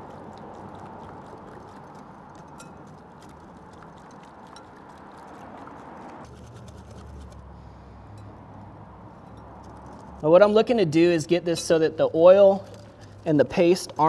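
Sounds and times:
whisk swishing in bowl: 0:00.0 - 0:07.4.

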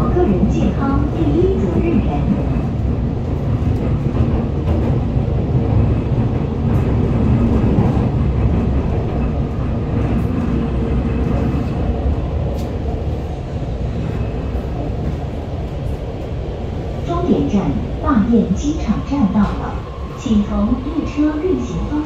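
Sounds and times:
metro train running rumble: 0:00.0 - 0:22.0
faint train whine: 0:10.2 - 0:22.0.

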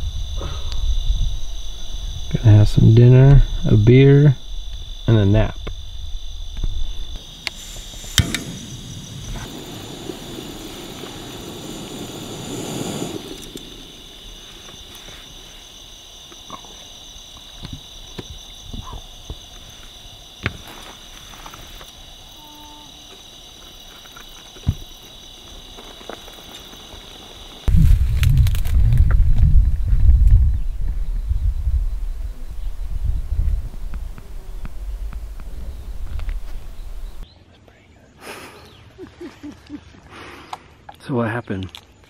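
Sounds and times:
crickets chirping: 0:00.0 - 0:42.0
rushing hiss: 0:07.2 - 0:16.0.

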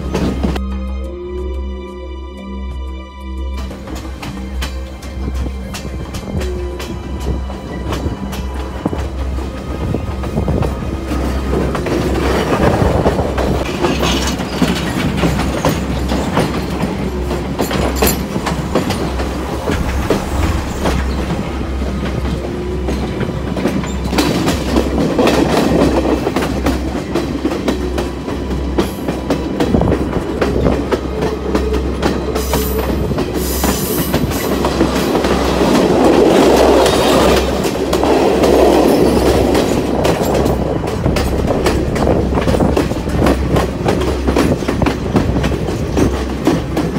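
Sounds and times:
train rumbling: 0:00.0 - 0:46.9
wheels clicking over rail joints: 0:03.9 - 0:20.4.

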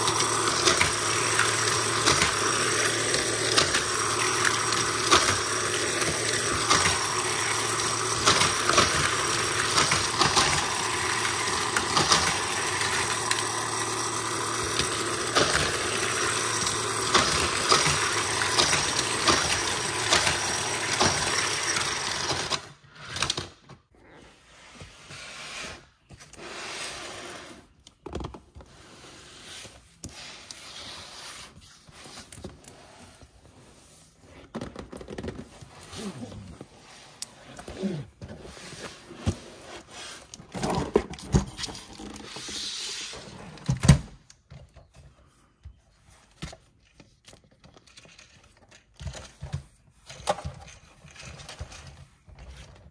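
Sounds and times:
toy track booster whirring: 0:00.0 - 0:23.6, 0:49.0 - 0:52.8
toy cars clattering on plastic track: 0:00.0 - 0:23.7, 0:40.1 - 0:44.8, 0:46.8 - 0:52.9.

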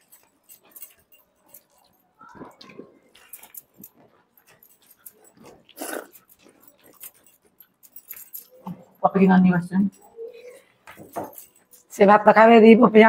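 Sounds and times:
people chewing: 0:00.0 - 0:08.9.

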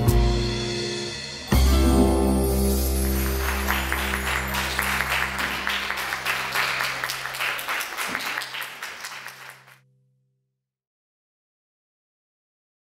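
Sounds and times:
audience applauding: 0:02.7 - 0:09.8.

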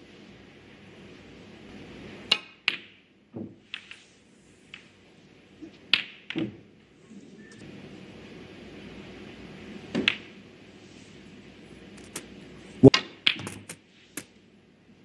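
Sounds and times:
snooker balls clicking: 0:02.3 - 0:03.0, 0:05.6 - 0:06.6, 0:09.9 - 0:10.4, 0:11.9 - 0:14.3
soft steady hush: 0:03.6 - 0:05.9, 0:06.8 - 0:12.9, 0:13.8 - 0:15.0.

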